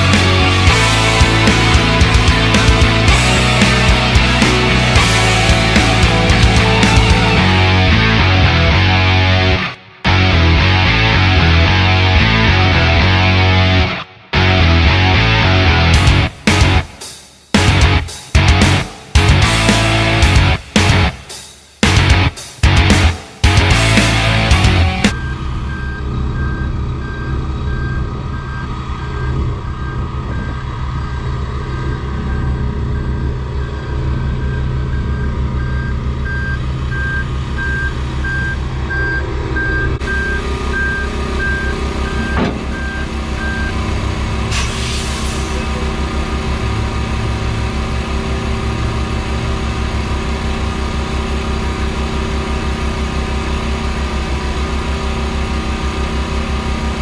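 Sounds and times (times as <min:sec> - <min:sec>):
diesel truck engine idling: 0:00.0 - 0:16.8, 0:21.9 - 0:57.0
backup alarm beeping: 0:25.1 - 0:43.8.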